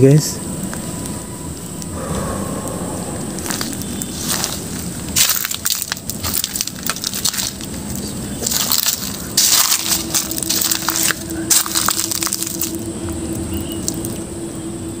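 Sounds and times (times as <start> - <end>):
footsteps on dry leaves: 3.4 - 14.1.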